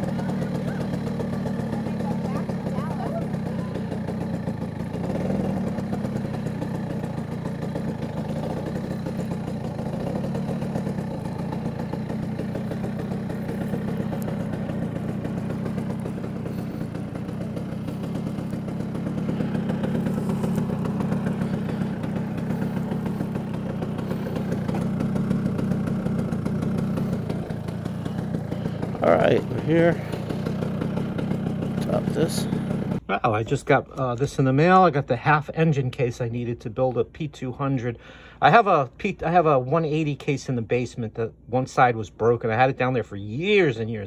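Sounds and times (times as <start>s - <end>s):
scooter engine running: 0.0s - 33.0s.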